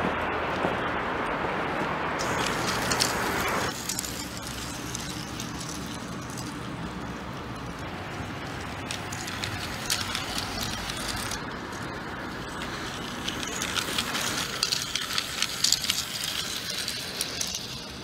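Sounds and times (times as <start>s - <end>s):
toy train rattling on track: 2.2s - 18.0s.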